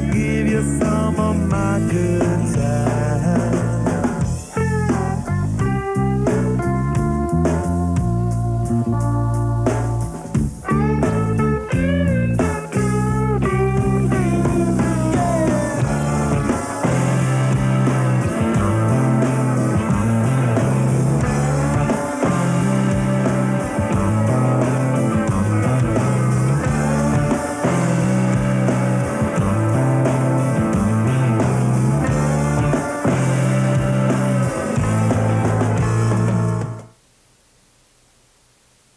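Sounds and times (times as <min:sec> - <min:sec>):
bass line: 0:00.0 - 0:37.0
rock guitar: 0:00.0 - 0:37.0.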